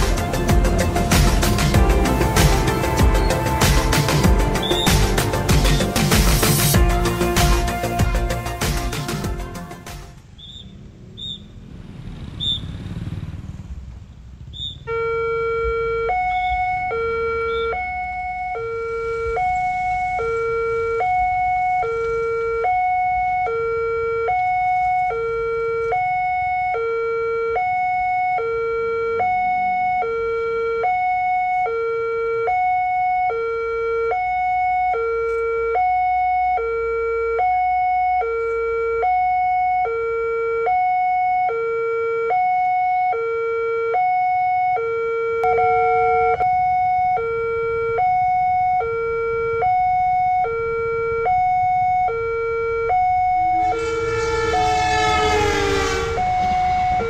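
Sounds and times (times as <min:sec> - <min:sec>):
two-tone level crossing alarm: 0:14.9 - 0:57.0.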